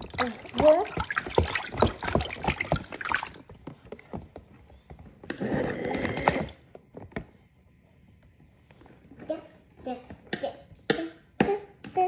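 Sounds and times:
water splashing and sloshing: 0:00.0 - 0:07.6.

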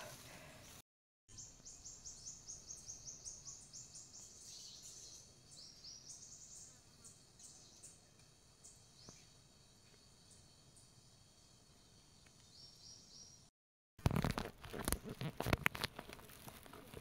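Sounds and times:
forest background hiss: 0:00.0 - 0:13.5.

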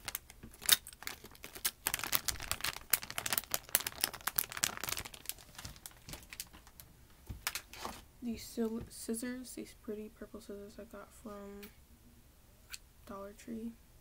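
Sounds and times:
plastic crinkling and rustling: 0:00.0 - 0:08.9.

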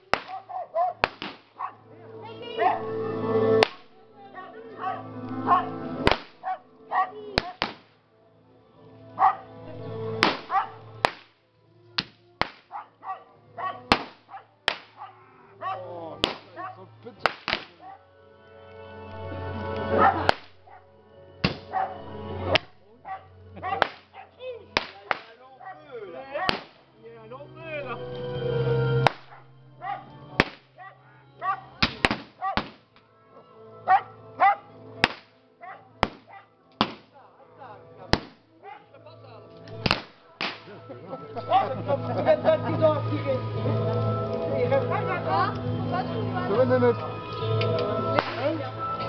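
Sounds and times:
sharp cracks: 0:00.0 - 0:01.7, 0:03.6 - 0:03.9, 0:06.0 - 0:06.6, 0:07.4 - 0:08.0, 0:10.2 - 0:11.4, 0:12.0 - 0:12.9, 0:13.9 - 0:15.1, 0:16.2 - 0:16.6, 0:17.2 - 0:17.8, 0:20.2 - 0:20.7, 0:21.4 - 0:21.8, 0:23.8 - 0:25.4, 0:26.5 - 0:26.8, 0:29.0 - 0:29.4, 0:30.4 - 0:30.7, 0:31.8 - 0:33.0, 0:35.0 - 0:35.4, 0:36.0 - 0:37.2, 0:38.1 - 0:38.4, 0:39.6 - 0:40.7, 0:48.2 - 0:48.4
pistol shots: 0:00.1 - 0:00.4, 0:01.0 - 0:01.6, 0:06.1 - 0:06.4, 0:07.4 - 0:07.9, 0:10.2 - 0:11.3, 0:12.0 - 0:12.7, 0:13.9 - 0:15.0, 0:16.2 - 0:16.5, 0:17.2 - 0:17.7, 0:26.5 - 0:26.8, 0:30.4 - 0:30.7, 0:31.8 - 0:32.8, 0:35.0 - 0:35.4, 0:36.0 - 0:37.1, 0:38.1 - 0:38.4, 0:39.8 - 0:40.7
dog barking: 0:00.3 - 0:01.0, 0:01.6 - 0:01.8, 0:04.4 - 0:05.8, 0:06.4 - 0:07.6, 0:09.2 - 0:09.5, 0:10.5 - 0:10.8, 0:12.7 - 0:15.9, 0:16.6 - 0:16.8, 0:17.8 - 0:18.0, 0:19.9 - 0:20.9, 0:21.7 - 0:22.0, 0:23.0 - 0:24.4, 0:25.6 - 0:26.5, 0:29.3 - 0:30.1, 0:30.8 - 0:31.8, 0:32.4 - 0:32.6, 0:33.9 - 0:34.7, 0:35.6 - 0:36.5, 0:38.6 - 0:38.9.

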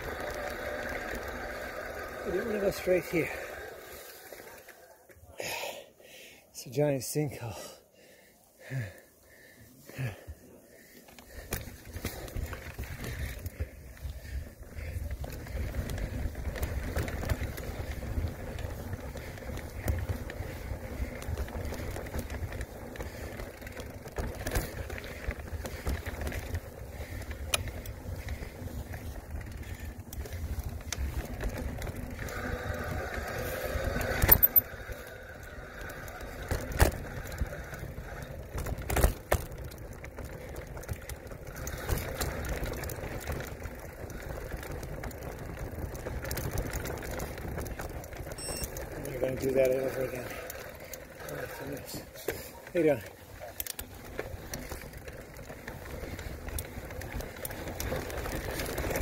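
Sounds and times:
bike knocking and rattling: 0:00.0 - 0:05.3, 0:08.8 - 0:59.0
bike tyres rumbling on rock: 0:00.0 - 0:05.7, 0:09.9 - 0:59.0.

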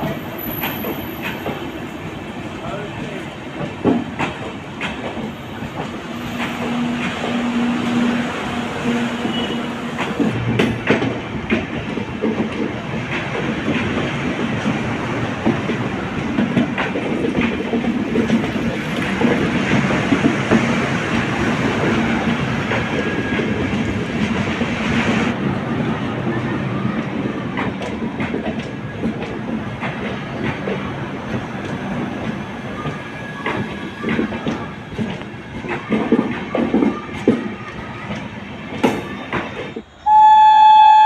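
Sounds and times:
clickety-clack over rail joints: 0:00.0 - 0:39.9
train wheels rumbling on rails: 0:00.0 - 0:40.2.

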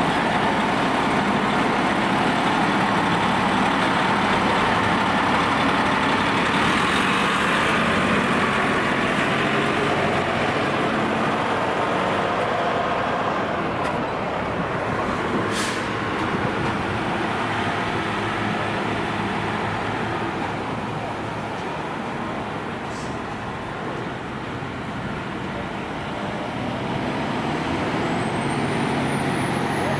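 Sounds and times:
truck diesel engine passing: 0:00.0 - 0:29.9
air hiss: 0:15.5 - 0:16.0.

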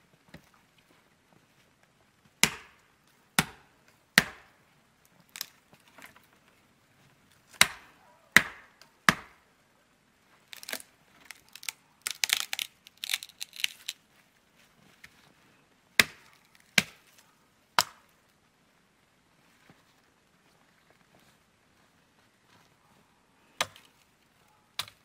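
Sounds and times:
axe chopping tree trunk: 0:02.4 - 0:02.8, 0:03.4 - 0:04.6, 0:07.5 - 0:09.4, 0:16.0 - 0:17.1, 0:17.8 - 0:18.0, 0:23.6 - 0:23.9, 0:24.8 - 0:25.0
wood cracking and snapping: 0:05.1 - 0:06.3, 0:10.5 - 0:14.0.

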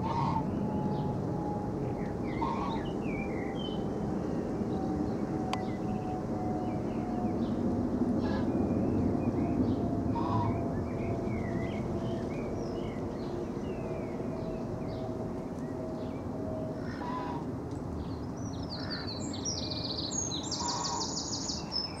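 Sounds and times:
distant jet engine rumble: 0:00.0 - 0:22.0
birds chirping: 0:01.9 - 0:07.6, 0:18.0 - 0:22.0.

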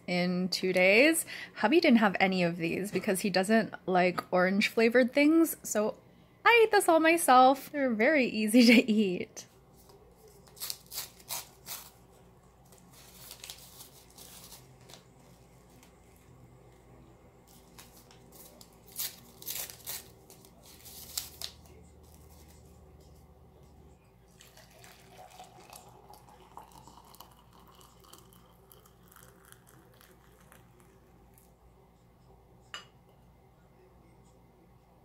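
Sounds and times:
tea bags crinkling: 0:12.6 - 0:15.9, 0:17.5 - 0:22.6
water pouring into glass cup: 0:24.3 - 0:31.5.

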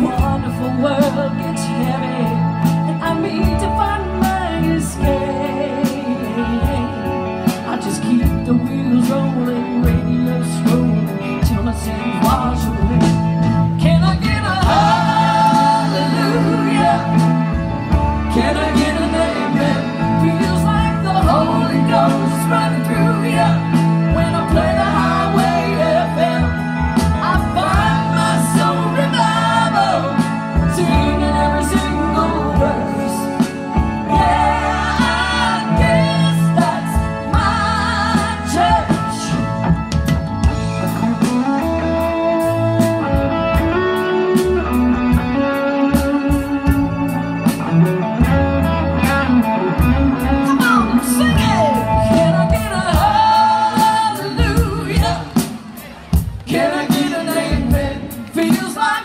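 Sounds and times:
live band playing country-rock: 0:00.0 - 0:59.0
saxophone and trumpet playing: 0:12.3 - 0:55.4.

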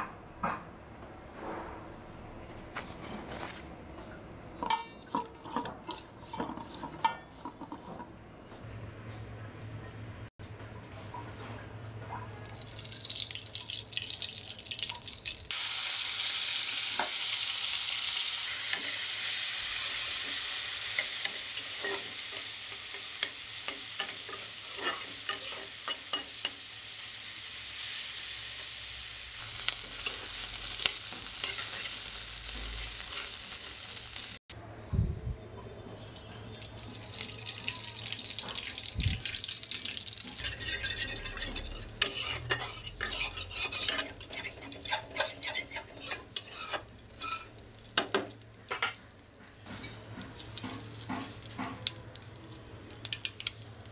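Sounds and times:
spatula scraping a pan: 0:04.6 - 0:08.1, 0:18.4 - 0:28.1, 0:29.5 - 0:34.0, 0:40.4 - 0:47.6
prawns sizzling in hot oil: 0:12.4 - 0:34.4, 0:36.1 - 0:53.9.

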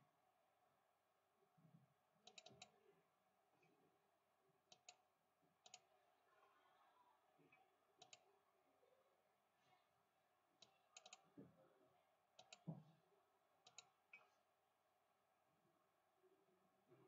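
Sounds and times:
computer mouse clicks: 0:02.2 - 0:02.8, 0:04.7 - 0:05.0, 0:05.6 - 0:05.9, 0:08.0 - 0:08.2, 0:10.6 - 0:11.2, 0:12.4 - 0:12.7, 0:13.6 - 0:14.3.

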